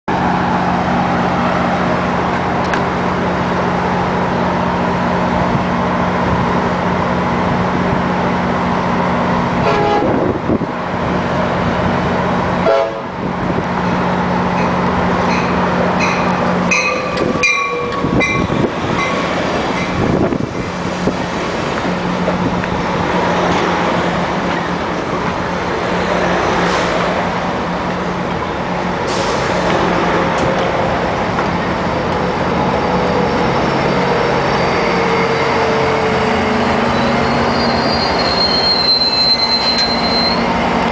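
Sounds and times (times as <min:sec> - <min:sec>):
diesel locomotive idling: 0:00.1 - 0:40.9
train cars rolling past: 0:00.1 - 0:40.9
train signal high notes: 0:15.3 - 0:19.1.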